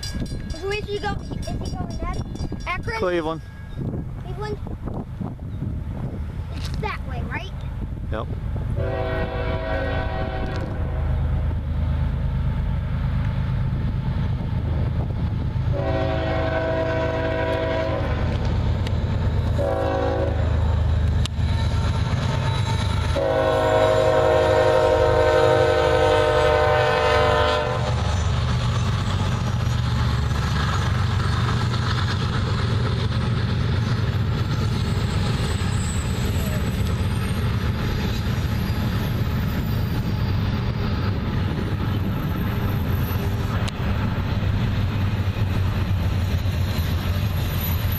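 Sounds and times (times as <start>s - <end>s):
engine and wheel rumble: 3.8s - 23.5s, 27.4s - 47.9s
locomotive air horn blasts: 8.8s - 11.2s, 15.7s - 18.3s, 19.6s - 20.5s, 23.2s - 28.0s.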